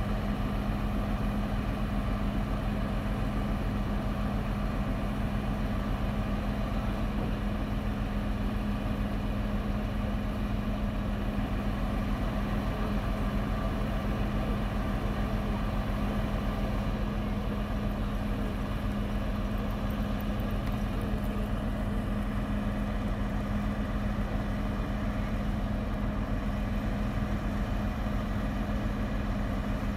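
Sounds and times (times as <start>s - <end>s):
diesel engine humming: 0.0s - 29.9s.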